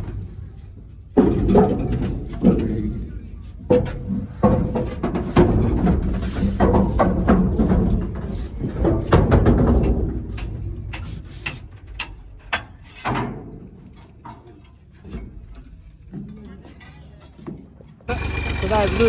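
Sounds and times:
footsteps on wooden planks: 0:03.5 - 0:12.6.

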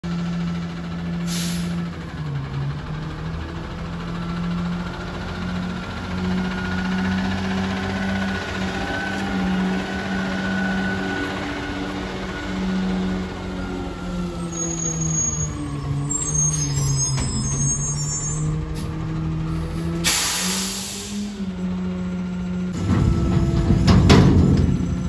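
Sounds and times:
garbage truck engine passing: 0:00.0 - 0:25.0
air hiss: 0:20.0 - 0:21.2.

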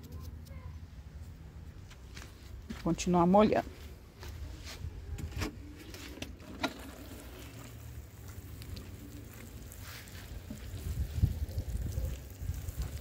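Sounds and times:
wind rumble on microphone: 0:10.5 - 0:13.0.

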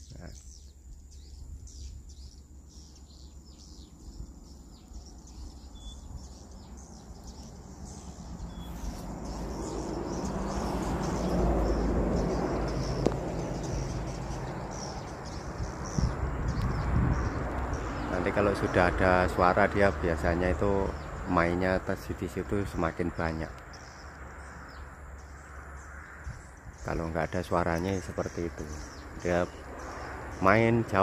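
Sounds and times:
broad rushing noise: 0:06.5 - 0:24.6.

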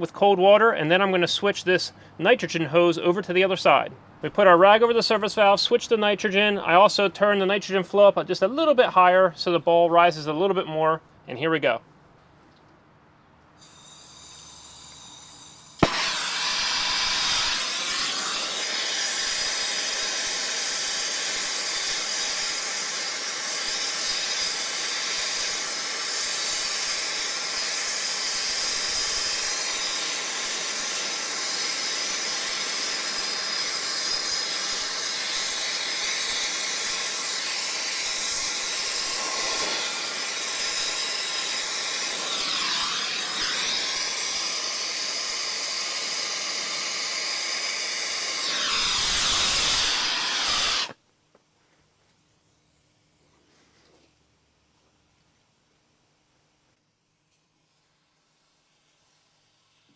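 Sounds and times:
torch flame hissing: 0:13.6 - 0:51.0.

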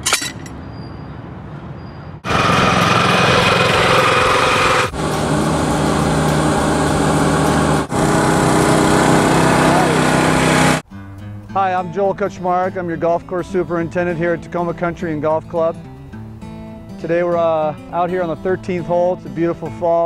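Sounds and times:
small engines running: 0:02.2 - 0:10.8.

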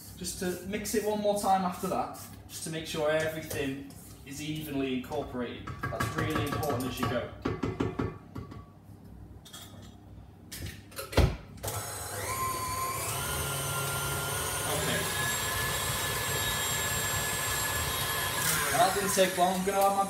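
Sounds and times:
stand mixer motor whining: 0:11.7 - 0:20.0.

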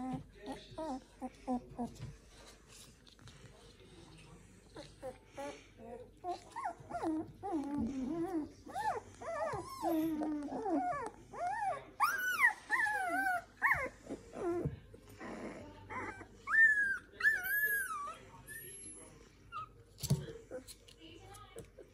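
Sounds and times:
puppies whining and squealing: 0:00.0 - 0:02.1, 0:04.7 - 0:20.8.

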